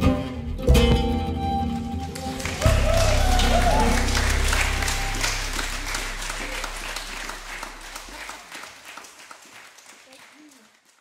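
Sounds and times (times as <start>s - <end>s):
audience applauding: 1.8s - 11.0s
low bass note ringing: 2.6s - 8.2s.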